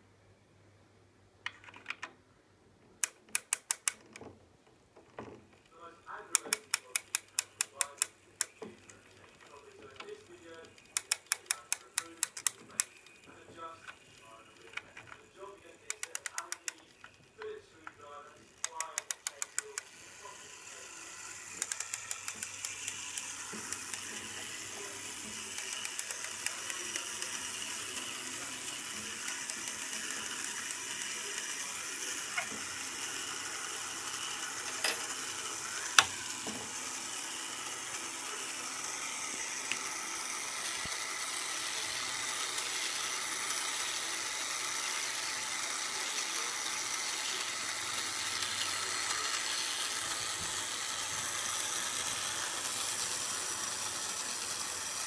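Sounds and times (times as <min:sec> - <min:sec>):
clock ratchet clicks: 0:03.0 - 0:04.0, 0:06.1 - 0:15.0, 0:15.8 - 0:17.1, 0:18.5 - 0:55.0
sharp clicks: 0:03.0 - 0:04.0, 0:06.3 - 0:09.0, 0:09.9 - 0:13.2, 0:15.8 - 0:17.6, 0:18.6 - 0:19.9, 0:21.5 - 0:24.2
clock gear train whirring: 0:03.0 - 0:04.1, 0:05.6 - 0:55.0.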